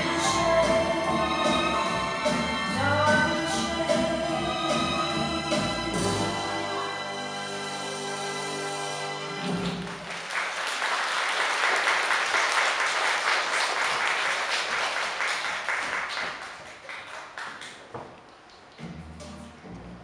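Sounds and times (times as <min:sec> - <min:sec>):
audience applause: 0:09.4 - 0:18.0.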